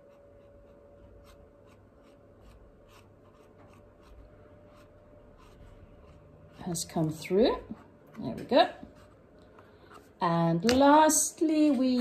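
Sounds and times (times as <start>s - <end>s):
paintbrush strokes: 0.0s - 7.9s.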